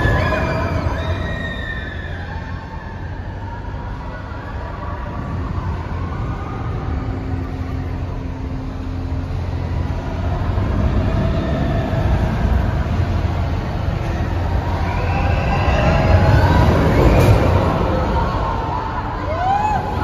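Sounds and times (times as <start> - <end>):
amusement ride machinery rumbling: 0.0 - 20.0.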